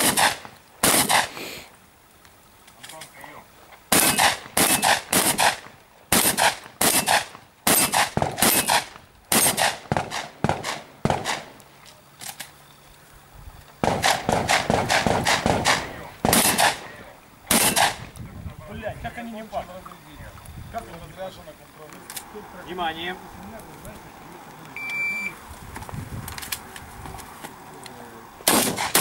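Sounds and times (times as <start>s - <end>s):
shotgun shots: 0.0s - 1.4s, 3.9s - 11.6s, 13.8s - 18.1s, 28.4s - 29.0s.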